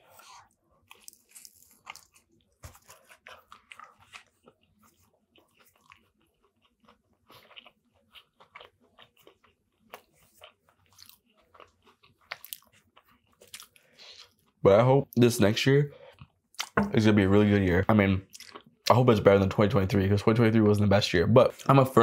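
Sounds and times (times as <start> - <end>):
chewing with mouth clicks: 0.1 - 14.6, 16.0 - 16.8, 18.2 - 18.9
biting into sandwich: 0.2 - 14.4.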